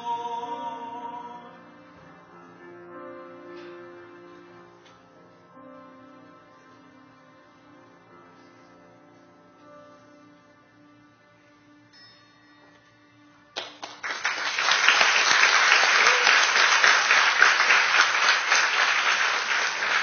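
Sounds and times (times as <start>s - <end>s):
audience applause: 13.6s - 20.0s.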